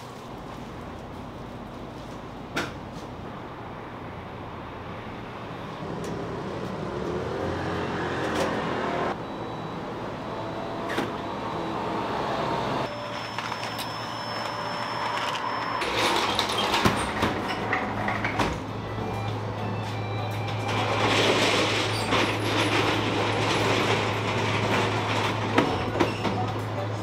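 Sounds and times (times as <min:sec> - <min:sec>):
thin high tone: 0:12.9 - 0:16.6.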